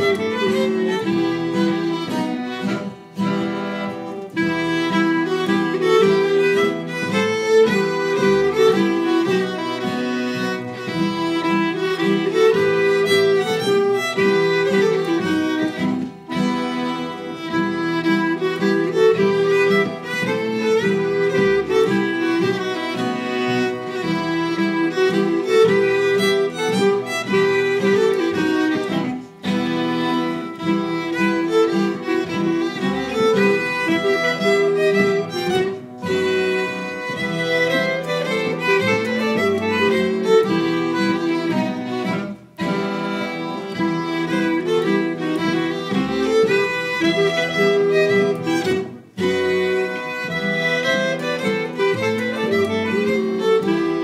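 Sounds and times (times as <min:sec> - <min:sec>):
folk ensemble instrumental tune: 0:00.0 - 0:54.0.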